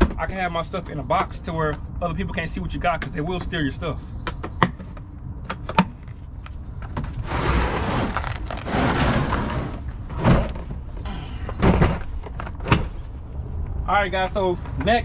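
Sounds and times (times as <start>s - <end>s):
plastic box scraping: 7.0s - 13.1s.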